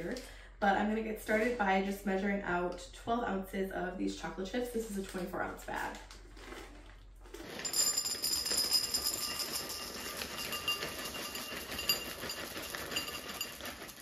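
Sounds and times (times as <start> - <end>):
chocolate chips rattling into bowl: 7.4 - 14.0.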